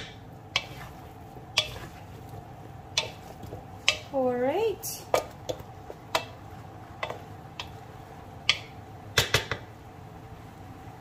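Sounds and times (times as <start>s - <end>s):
spatula knocking metal wok: 0.0s - 2.0s, 2.9s - 4.2s, 5.0s - 9.7s.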